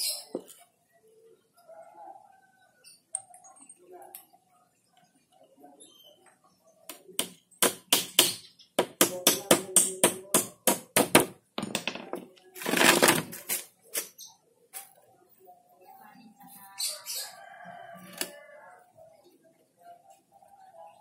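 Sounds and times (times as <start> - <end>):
sharp knocks: 7.2 - 12.3
frame scraping on concrete: 11.6 - 13.7.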